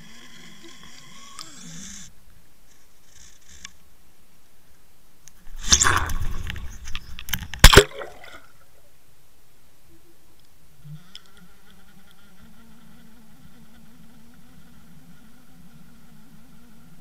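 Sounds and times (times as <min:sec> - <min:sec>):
water sloshing: 0:05.4 - 0:08.6
sharp water splashes: 0:05.5 - 0:08.6.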